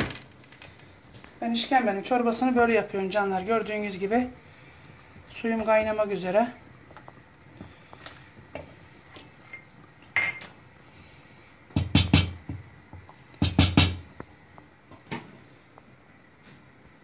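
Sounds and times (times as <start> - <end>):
wooden spoon knocking on pot: 11.7 - 12.6, 13.4 - 14.1.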